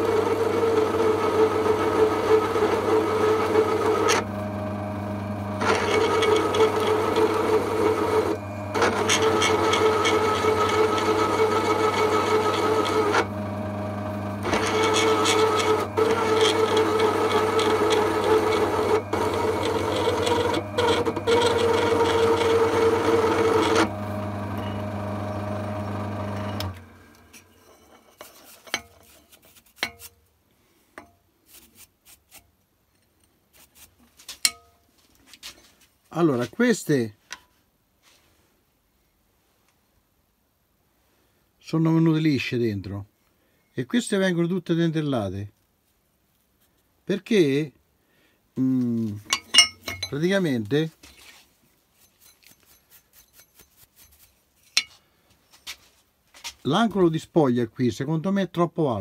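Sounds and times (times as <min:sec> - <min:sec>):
cutter rasping into metal: 0:00.0 - 0:04.3, 0:05.5 - 0:13.5, 0:14.3 - 0:25.2, 0:49.2 - 0:50.2, 0:52.0 - 0:54.9
drill press motor humming: 0:00.0 - 0:27.6.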